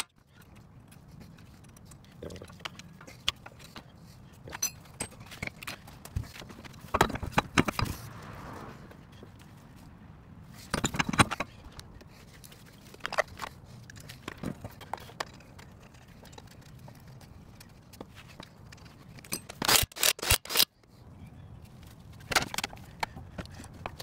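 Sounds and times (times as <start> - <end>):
metal wheel clunks and clinks: 4.4 - 7.9, 10.6 - 11.8.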